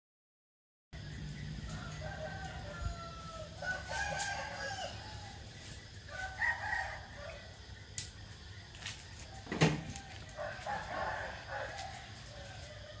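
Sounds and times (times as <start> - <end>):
rooster crowing: 1.6 - 7.7, 9.3 - 13.0.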